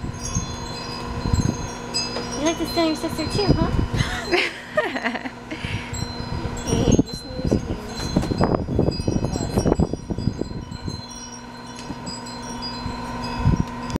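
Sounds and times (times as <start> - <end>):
wind chimes ringing: 0.0 - 14.0.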